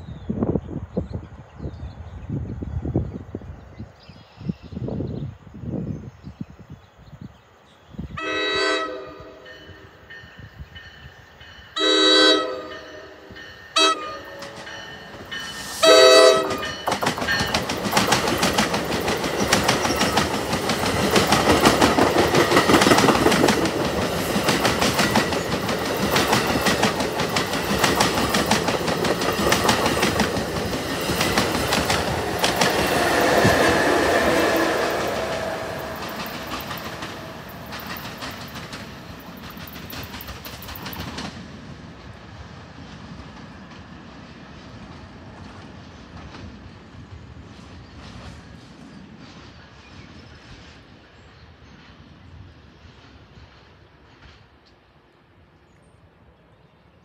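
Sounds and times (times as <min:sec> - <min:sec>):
train horn blasts: 0:08.1 - 0:10.1, 0:11.8 - 0:16.8, 0:32.6 - 0:37.5
train wheels clacking on rails: 0:12.6 - 0:41.6.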